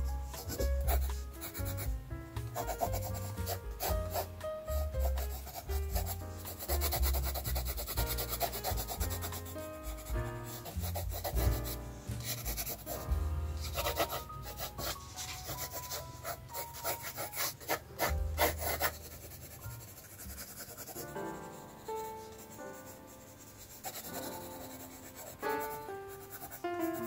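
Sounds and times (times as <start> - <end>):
background music with bass line: 0.0 - 15.2, 18.0 - 18.9
pencil scratching on paper: 0.0 - 27.0.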